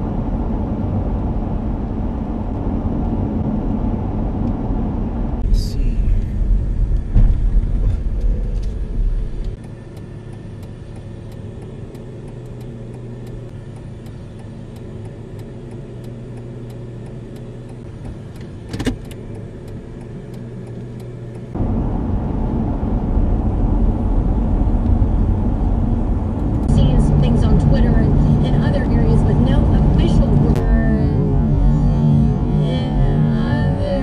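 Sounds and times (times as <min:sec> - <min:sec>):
car road noise rumble: 0:00.0 - 0:34.0
faint regular ticks: 0:09.4 - 0:21.5.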